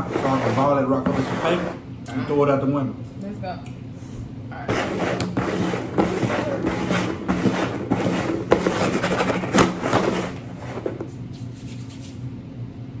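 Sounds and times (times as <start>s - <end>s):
plastic bowls scraping on wood: 0.0s - 1.8s, 4.6s - 11.1s.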